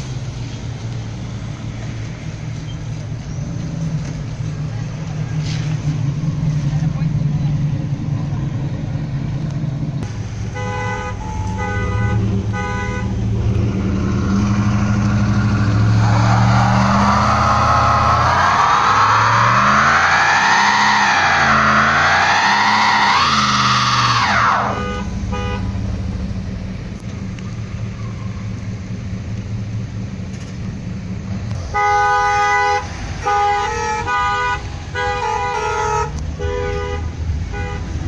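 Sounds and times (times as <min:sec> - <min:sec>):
truck engine revving: 0:00.0 - 0:36.4
vehicle horns honking: 0:10.4 - 0:23.1, 0:24.4 - 0:25.9, 0:31.6 - 0:38.0
tyres squealing: 0:11.1 - 0:25.2.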